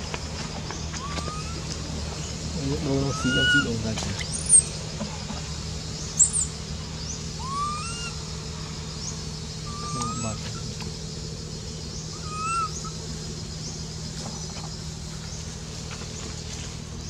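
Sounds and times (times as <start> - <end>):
steady low hum: 0.0 - 17.0
high animal chirps: 0.9 - 1.8, 3.0 - 4.8, 6.0 - 10.7, 12.0 - 13.0
thin whistled animal calls: 0.9 - 4.8, 6.0 - 10.7, 12.0 - 13.0.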